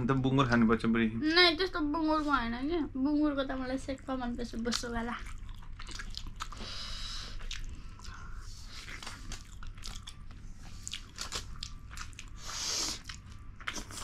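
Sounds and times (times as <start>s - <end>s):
people chewing and crunching: 4.6s - 14.0s.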